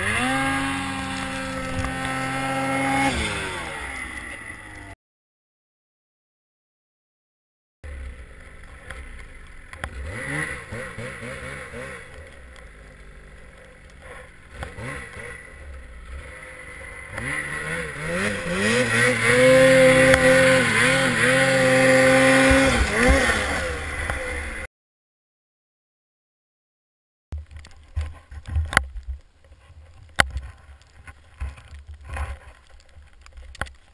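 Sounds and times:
snowmobile engine revving: 0.0s - 5.0s, 7.9s - 24.7s.

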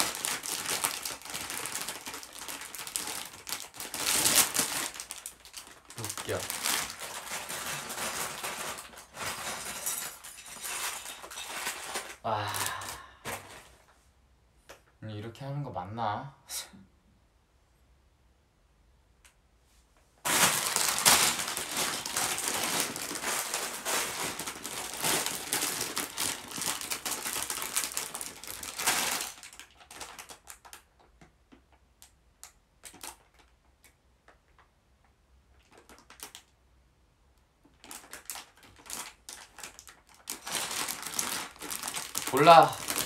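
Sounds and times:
plastic parts rattling: 0.0s - 12.2s, 20.3s - 31.1s, 37.6s - 43.0s
plastic bag crinkling: 0.0s - 13.9s, 20.2s - 31.1s, 35.6s - 36.5s, 37.6s - 43.0s.

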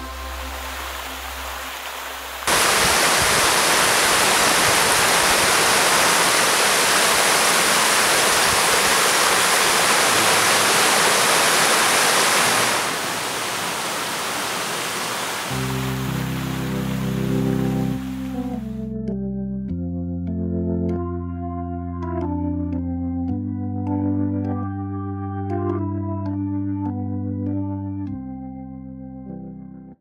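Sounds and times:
music: 0.0s - 2.5s, 15.5s - 30.0s
waterfall rushing over rocks: 0.0s - 18.4s.

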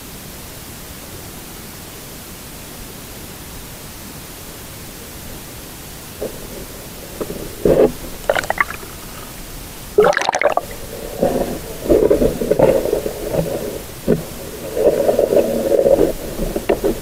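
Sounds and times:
underwater gurgling and sloshing: 6.1s - 17.0s.

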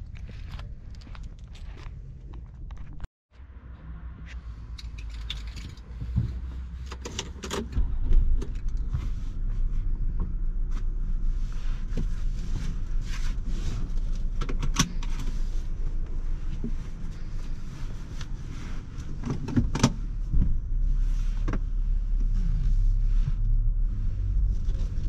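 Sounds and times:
car engine starting and running: 2.7s - 25.0s.

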